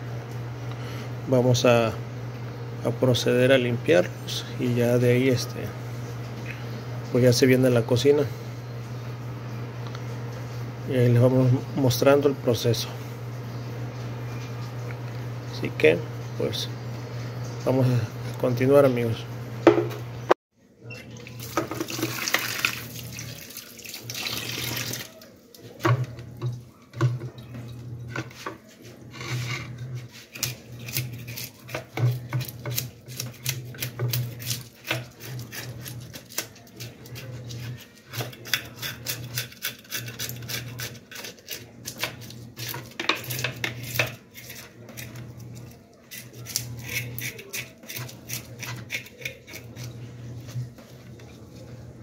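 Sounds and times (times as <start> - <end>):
tap running: 19.6 - 20.1, 21.1 - 31.1
knife scraping fish scales: 28.3 - 50.6.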